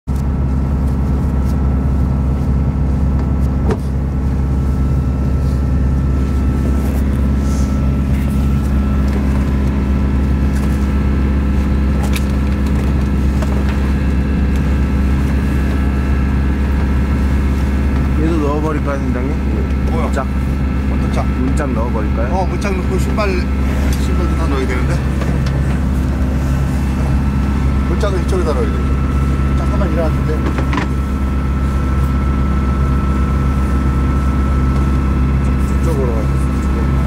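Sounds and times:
boat engine humming: 0.1s - 37.0s.

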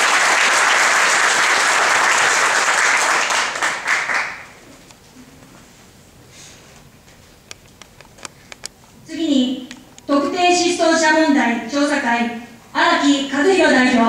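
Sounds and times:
audience applauding: 0.0s - 4.6s.

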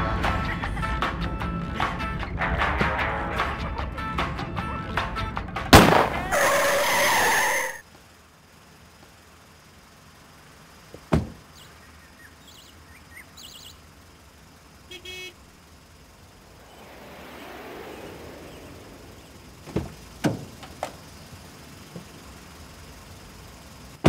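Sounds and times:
car passing: 0.0s - 24.0s
car door clicks and knocks: 10.9s - 11.4s, 19.7s - 21.0s
car door thump: 10.9s - 11.5s, 19.6s - 21.0s.

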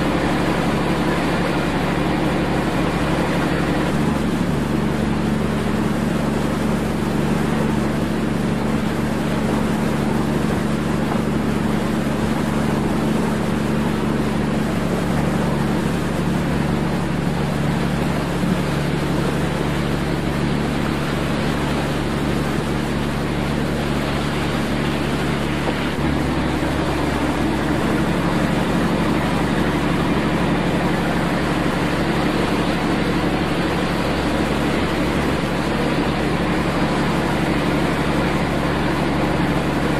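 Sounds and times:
broad rushing noise: 0.0s - 39.9s
ship engines droning: 0.0s - 39.9s.

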